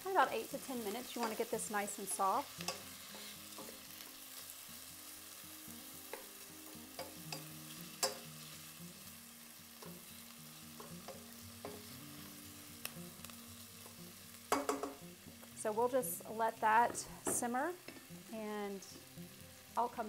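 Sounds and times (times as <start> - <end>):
onions sizzling in oil: 0.0 - 20.0
spatula scraping against pan: 2.5 - 4.6.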